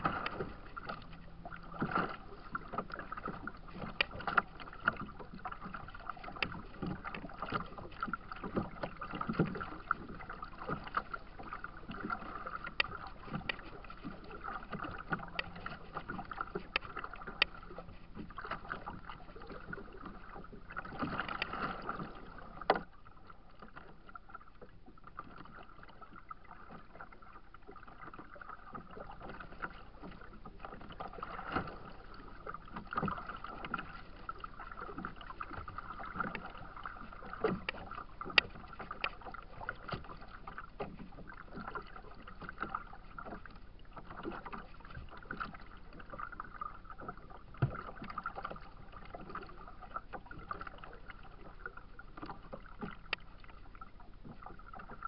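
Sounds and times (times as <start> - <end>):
wash of waves: 0.0 - 22.6
water slapping against kayak: 0.0 - 55.0.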